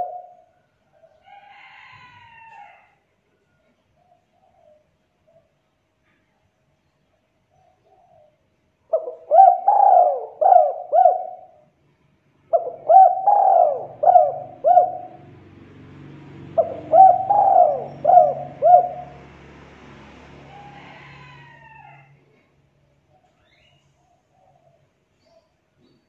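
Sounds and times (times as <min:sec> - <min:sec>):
dove cooing: 0:00.0 - 0:01.1, 0:07.6 - 0:11.6, 0:12.5 - 0:15.5, 0:16.4 - 0:19.4.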